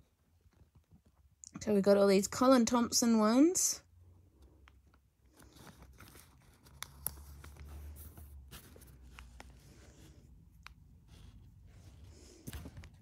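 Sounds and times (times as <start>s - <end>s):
paper pages rustling: 5.3s - 13.0s.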